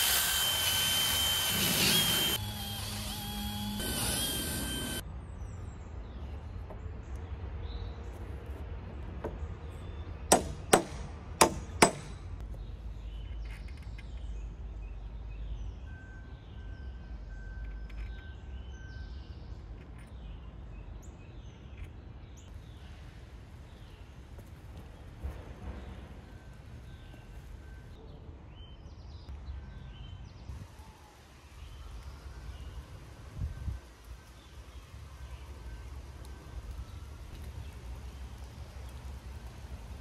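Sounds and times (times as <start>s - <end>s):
cordless drill boring wood: 0.0s - 5.0s
hammer strikes: 10.3s - 12.4s.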